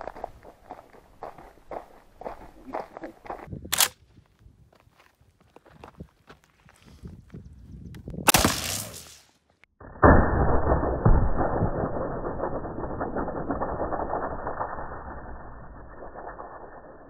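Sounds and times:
rifle shot: 8.3 - 9.1.

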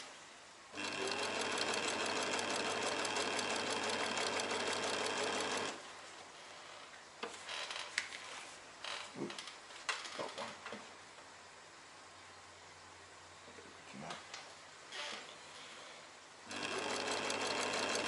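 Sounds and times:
sewing machine clattering: 0.8 - 5.8, 16.5 - 18.0.

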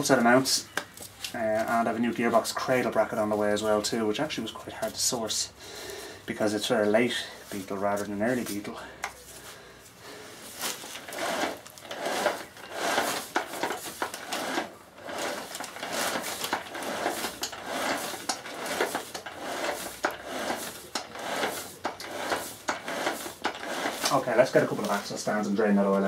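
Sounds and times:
plastic bag crinkling: 10.4 - 25.2.

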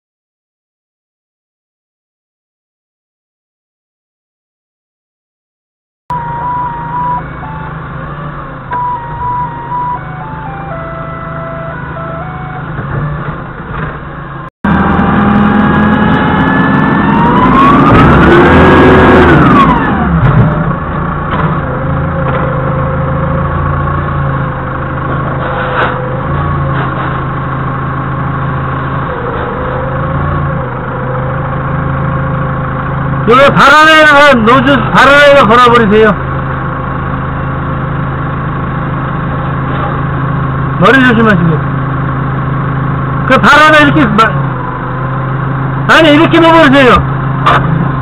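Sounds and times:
hydraulic whine: 6.1 - 33.4
forklift engine revving: 6.1 - 35.2, 41.6 - 48.0.

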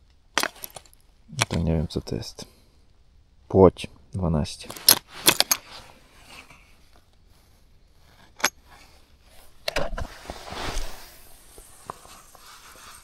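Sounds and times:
soft rustling: 4.6 - 13.0.

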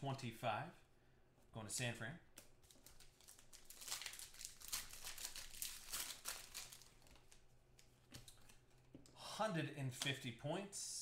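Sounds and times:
foil wrapper crinkling: 2.6 - 7.4.

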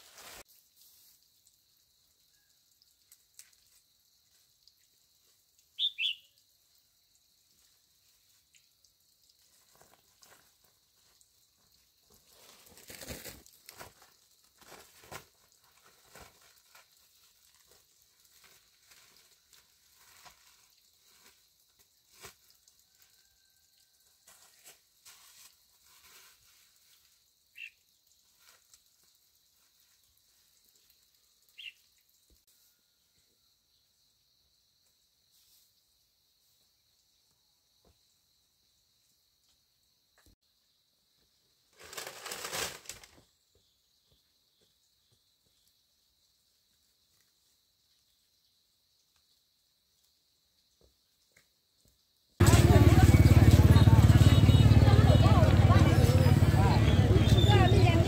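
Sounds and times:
leaves rustling and crackling: 0.0 - 1.3, 9.3 - 23.3, 24.3 - 31.0, 41.7 - 43.3, 52.4 - 58.0.

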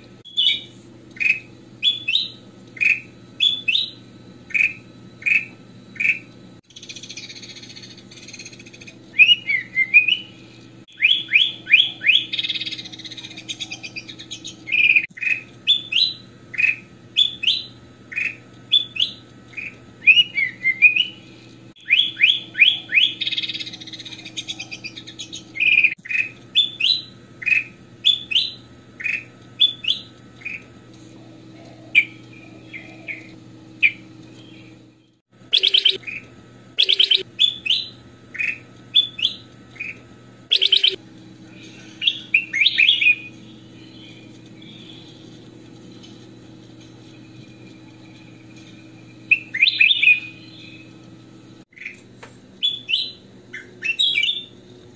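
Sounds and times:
faint steady hum: 0.0 - 54.9
bird singing chattering song: 0.3 - 30.7, 31.6 - 36.2, 36.8 - 51.0, 51.7 - 54.9.

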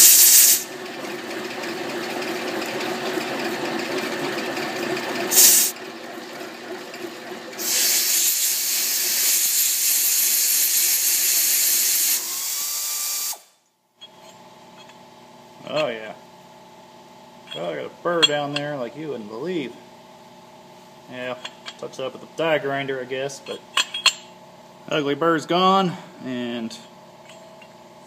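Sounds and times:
air blow gun hissing: 0.0 - 0.7, 5.3 - 5.7, 7.6 - 13.5
milling machine running: 0.0 - 9.8.

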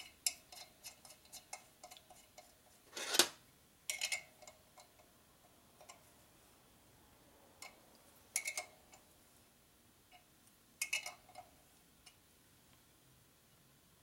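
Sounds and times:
metal scrape: 2.9 - 3.4.

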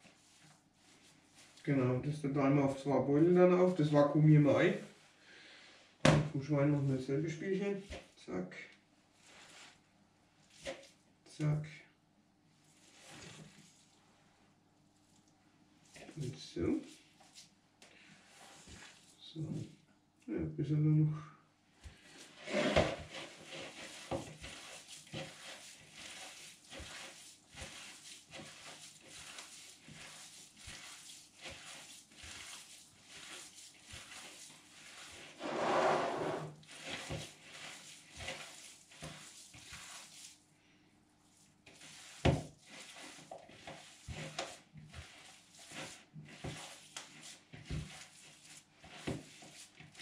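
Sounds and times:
hands squishing minced meat: 0.0 - 5.0, 9.1 - 9.8, 10.4 - 11.0, 14.9 - 19.7, 23.0 - 35.4, 36.6 - 40.5, 41.1 - 50.0
scrape in a plastic bowl: 9.2 - 9.8, 12.6 - 14.0, 16.8 - 19.7, 21.9 - 40.4, 41.3 - 50.0.

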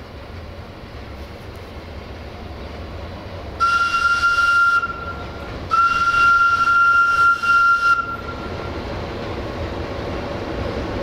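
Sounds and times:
diesel engine rumble: 0.0 - 11.0
locomotive air whistle blasts: 3.6 - 8.6.

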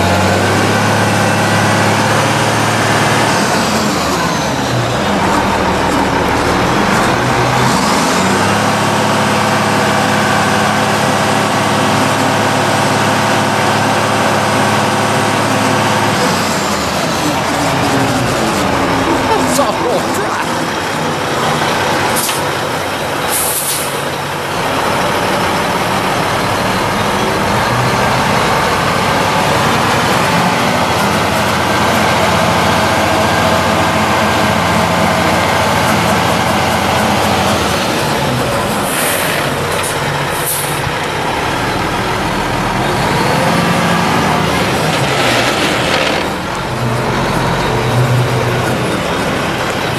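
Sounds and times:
diesel truck engine: 0.0 - 49.9
air brake hisses: 23.3 - 24.0.

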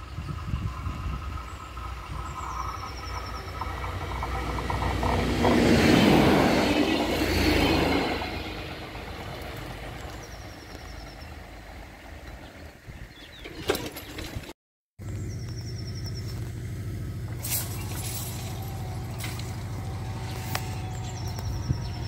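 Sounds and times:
train running past: 0.0 - 12.0.

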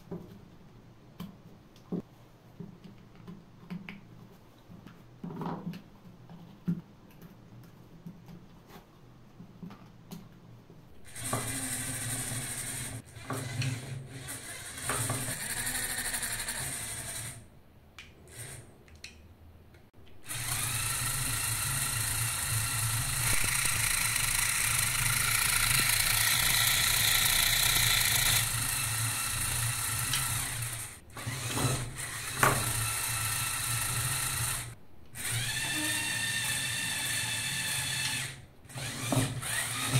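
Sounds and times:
toy motors whining: 11.0 - 17.4, 18.3 - 18.7, 20.2 - 39.9.

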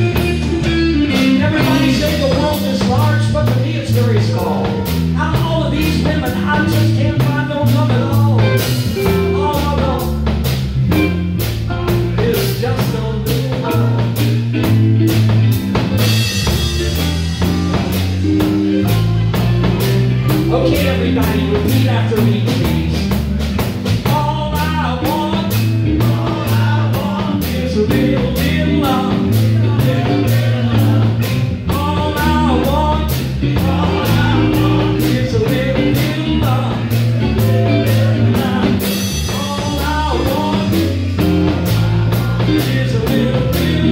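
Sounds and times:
person singing: 0.0 - 10.3, 11.9 - 14.8, 16.4 - 23.2, 24.0 - 43.9
live blues-rock band: 0.0 - 43.9.

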